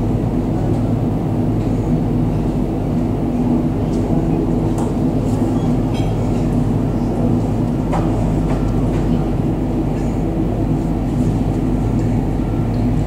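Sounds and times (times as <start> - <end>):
turboprop engines droning: 0.0 - 13.0.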